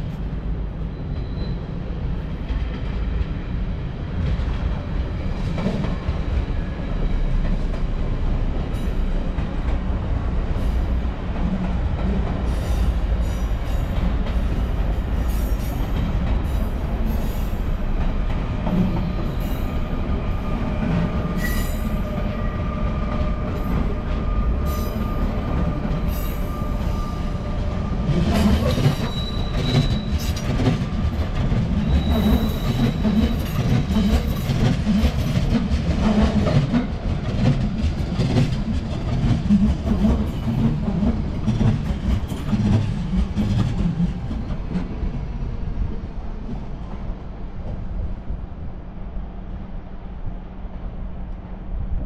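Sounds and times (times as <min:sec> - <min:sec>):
train wheels rumbling and clattering: 0:00.0 - 0:52.0
high wheel squeals: 0:21.2 - 0:22.9, 0:23.6 - 0:30.5, 0:31.7 - 0:34.5.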